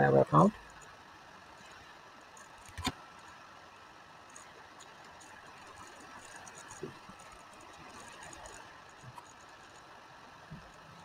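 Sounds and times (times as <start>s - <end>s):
microphone hiss: 0.0s - 11.0s.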